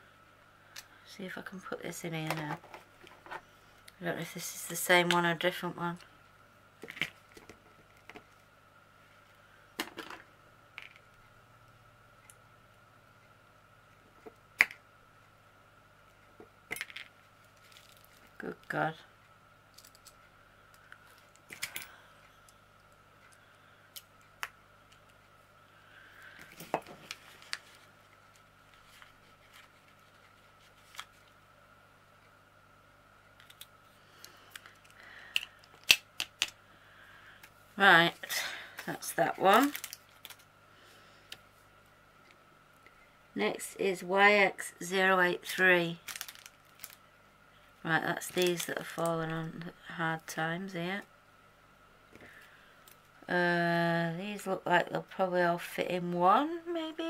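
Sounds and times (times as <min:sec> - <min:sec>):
faint steady hum: 0:00.0 - 0:57.0
plastic being handled: 0:16.8 - 0:19.0, 0:26.4 - 0:31.4, 0:38.1 - 0:40.5, 0:45.4 - 0:47.0, 0:48.1 - 0:50.3.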